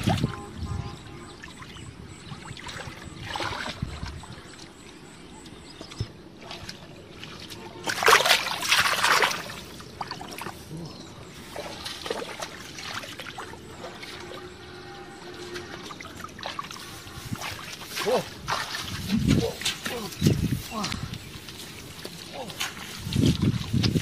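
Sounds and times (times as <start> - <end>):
muddy water splashing: 0.0 - 24.0
feet splashing through water: 1.4 - 5.0, 5.7 - 14.4, 15.4 - 24.0.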